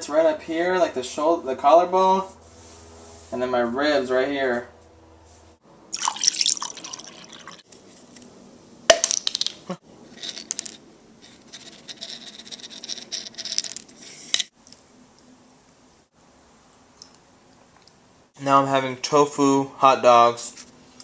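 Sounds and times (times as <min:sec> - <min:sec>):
liquid pouring into a cup: 0:05.9 - 0:07.6.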